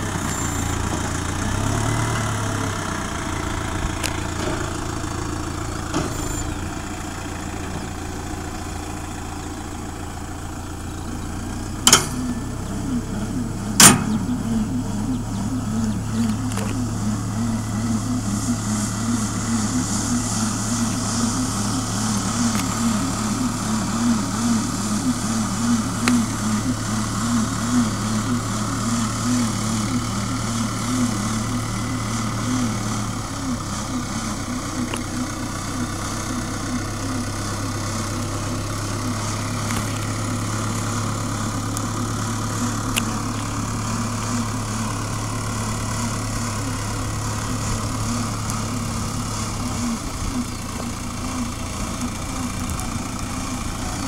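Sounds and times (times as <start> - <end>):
tractor engine running: 0.0 - 54.0
pulsing wavering hum: 2.2 - 54.0.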